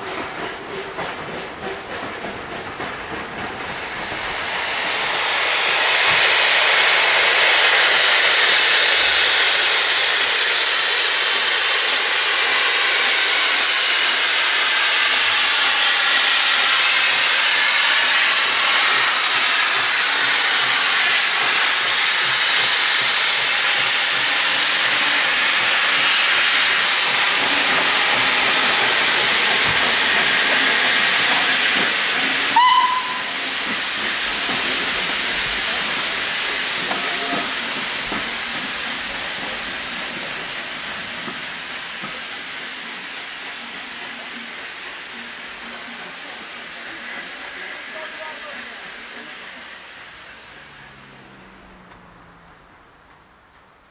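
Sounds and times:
steam hissing: 0:00.0 - 0:52.6
short whistle pip: 0:32.5 - 0:33.4.

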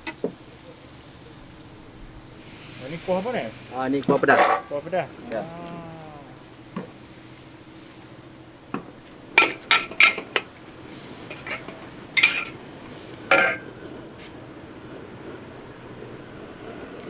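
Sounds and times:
metal utensil clanging on cookware: 0:09.4 - 0:10.4, 0:11.3 - 0:12.6, 0:13.3 - 0:13.6.

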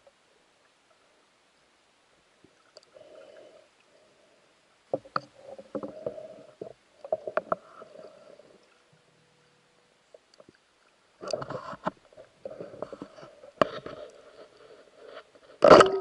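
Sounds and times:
muffled underwater knocks and clicks: 0:04.9 - 0:07.9
underwater scraping: 0:11.2 - 0:16.0.

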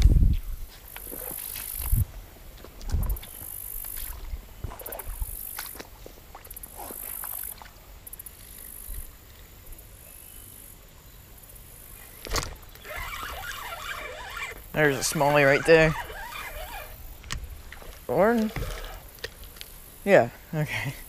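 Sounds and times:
water sloshing around feet: 0:02.5 - 0:07.9, 0:12.2 - 0:19.7.

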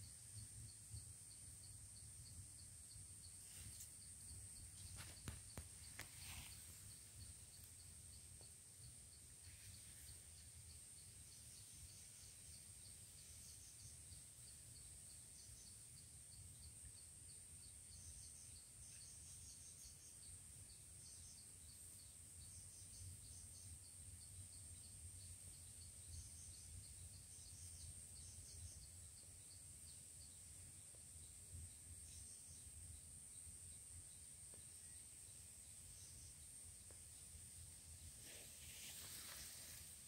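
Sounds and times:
insect chirps: 0:00.0 - 0:40.0
insects droning: 0:00.0 - 0:40.0.

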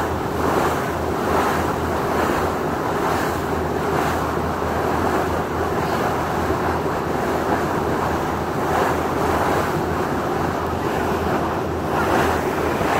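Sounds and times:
water rushing past boat: 0:00.0 - 0:12.9
wind buffeting microphone: 0:00.0 - 0:12.9
ferry engine humming: 0:07.3 - 0:12.9.

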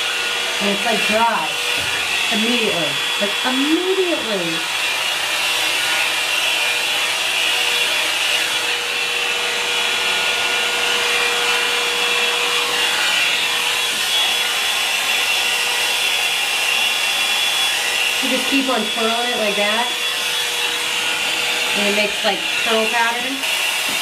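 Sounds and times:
hot air brush blowing: 0:00.0 - 0:24.0.

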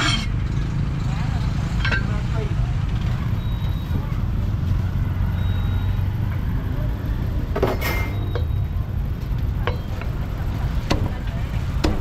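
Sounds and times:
metallic scrape and clink: 0:00.0 - 0:00.4
street traffic rumble: 0:00.0 - 0:12.0.

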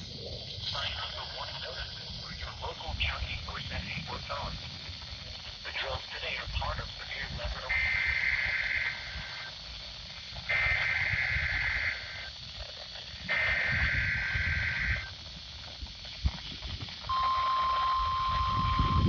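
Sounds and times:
wind rumbling on microphone: 0:00.0 - 0:19.0
steady warning alarm tone: 0:06.2 - 0:12.4, 0:13.2 - 0:15.3, 0:17.1 - 0:19.0
two-tone digital data screech: 0:13.3 - 0:15.1, 0:17.1 - 0:19.0.

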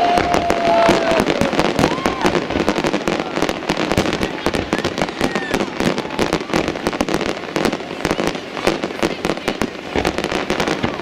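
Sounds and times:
fireworks bangs and crackling: 0:00.0 - 0:11.0.

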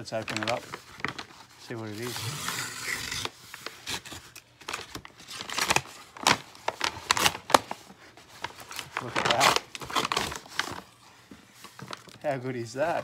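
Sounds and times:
plastic crinkling and rustling: 0:00.0 - 0:13.0
plastic satchel tearing: 0:08.6 - 0:10.9.

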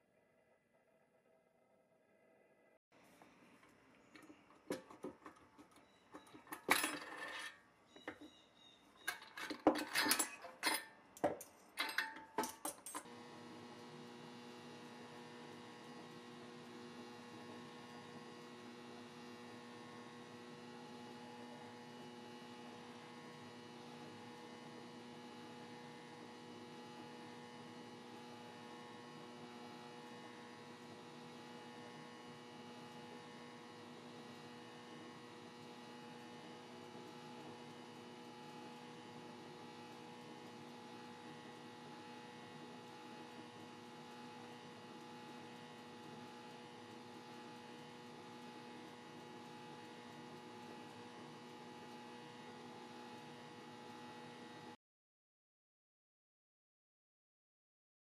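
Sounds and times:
toy parts clattering on wooden bench: 0:06.4 - 0:08.3, 0:09.0 - 0:13.1.

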